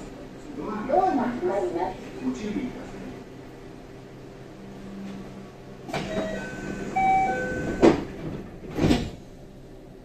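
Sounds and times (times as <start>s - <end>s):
train doors shutting thud: 5.9s - 9.3s
electronic tone chime: 6.1s - 7.7s.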